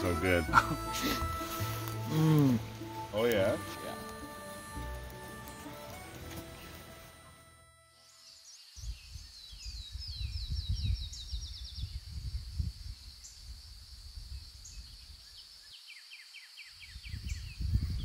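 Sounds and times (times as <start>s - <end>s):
steady high thin tone: 0.0s - 8.3s
bird calling high notes: 0.0s - 8.5s
wind rumbling on microphone: 8.8s - 15.4s, 16.8s - 18.0s.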